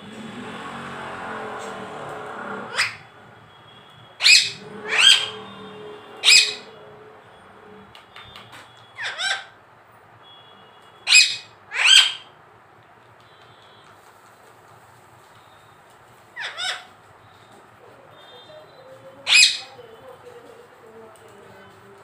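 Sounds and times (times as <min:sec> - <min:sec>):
parakeet squawking: 0:02.6 - 0:03.1, 0:04.2 - 0:07.2, 0:09.0 - 0:09.6, 0:11.0 - 0:12.3, 0:16.4 - 0:17.0, 0:18.1 - 0:19.9.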